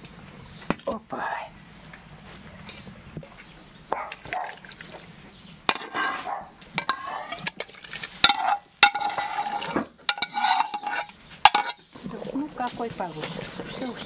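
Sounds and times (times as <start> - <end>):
metal ladle scraping frying pan: 5.7 - 11.9.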